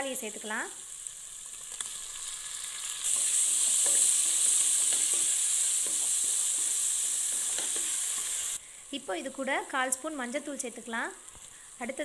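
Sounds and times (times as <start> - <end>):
tomatoes sizzling in hot oil: 0.0 - 12.0
spatula scraping and stirring: 2.8 - 8.5.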